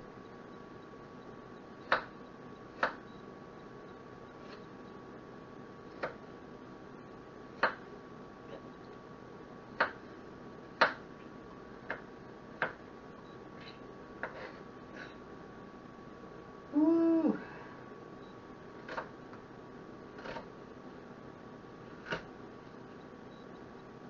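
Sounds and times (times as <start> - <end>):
knife chopping on cutting board: 11.9 - 12.8, 14.2 - 14.6.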